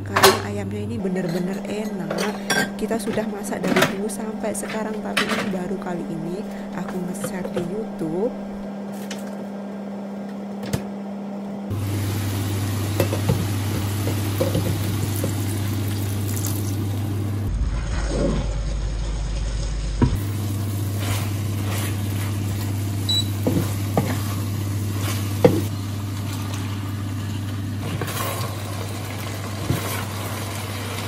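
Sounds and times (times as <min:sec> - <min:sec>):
low hum: 0:00.0 - 0:10.3, 0:11.1 - 0:27.8
food sizzling in a frying pan: 0:11.7 - 0:17.5, 0:19.2 - 0:31.0
wooden spatula scraping: 0:20.8 - 0:22.7.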